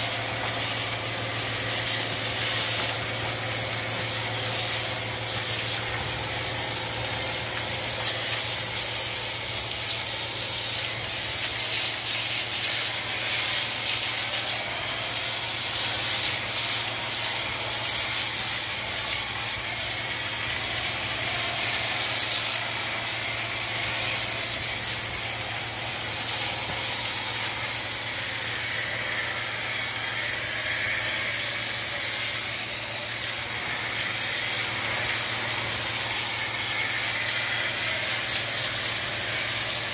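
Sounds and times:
pressure washer jet hissing: 0.0s - 39.9s.

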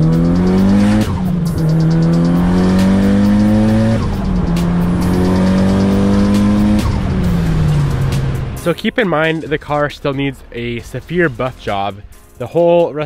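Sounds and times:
car engine accelerating through gears: 0.0s - 8.7s.

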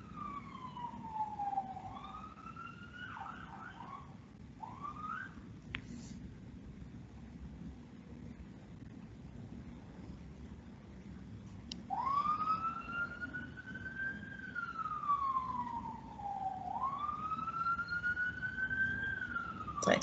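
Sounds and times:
siren wailing: 0.0s - 5.4s, 11.9s - 20.0s.

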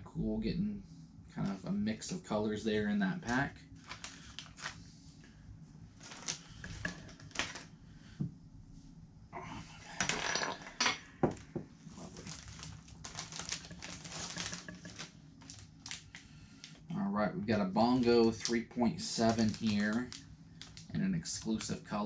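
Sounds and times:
plastic bags crinkling: 3.2s - 4.8s, 6.0s - 7.7s, 11.9s - 16.9s, 17.8s - 21.8s.

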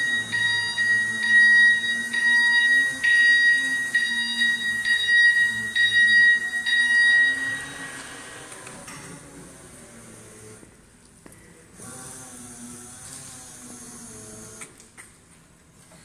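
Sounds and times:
forklift warning beeper: 0.0s - 8.2s.

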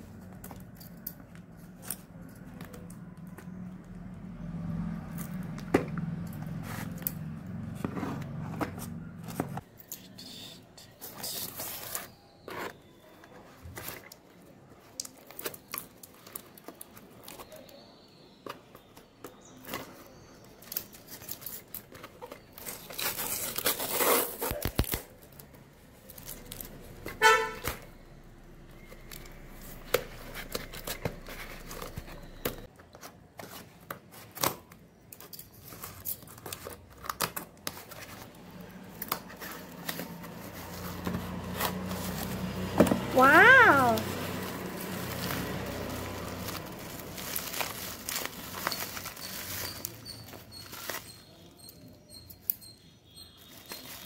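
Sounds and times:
packing tape tearing off cardboard: 10.9s - 17.7s, 19.5s - 27.9s, 28.8s - 51.9s.

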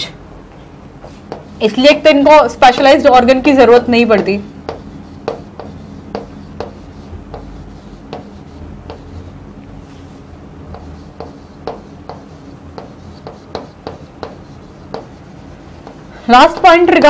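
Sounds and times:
low steady hum: 0.0s - 17.0s
chalk scratching on chalkboard: 1.0s - 3.0s, 4.0s - 17.0s.

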